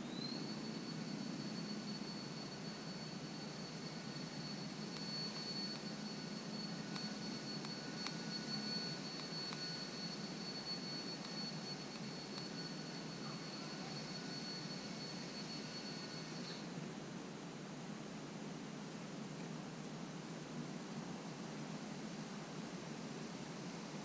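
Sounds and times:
thin high-pitched tone: 0.0s - 16.7s
outdoor background hiss: 0.0s - 24.0s.

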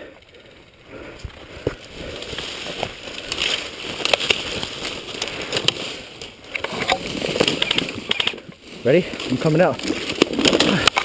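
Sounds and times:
leaves and twigs rustling: 1.0s - 11.0s
small branches snapping: 1.6s - 8.6s, 9.2s - 11.0s.

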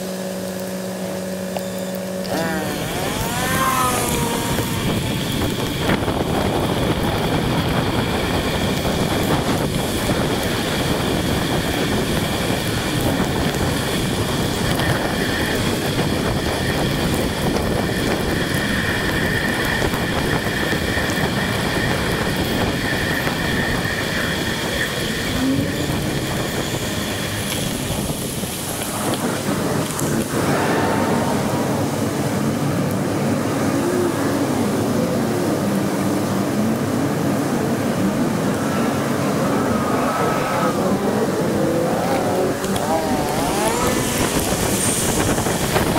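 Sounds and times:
tyres on wet road: 0.0s - 45.9s
wind rushing: 2.8s - 45.9s.

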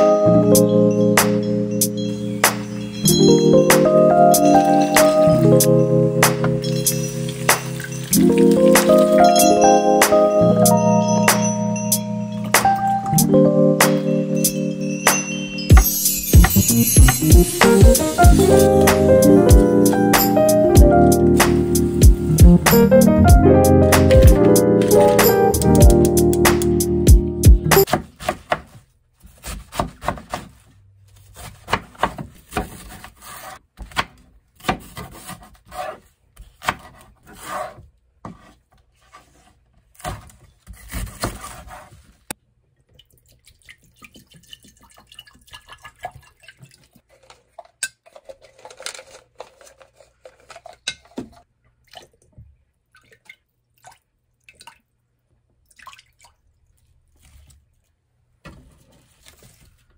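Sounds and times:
knife chopping on wooden board: 29.4s - 30.5s.

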